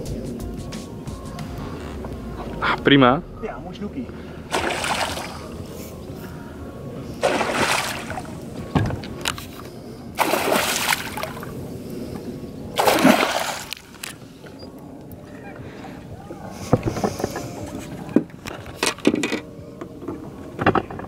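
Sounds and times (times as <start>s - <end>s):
fish splashing in water: 4.5s - 5.6s, 7.2s - 8.5s, 10.2s - 11.6s, 12.7s - 14.2s.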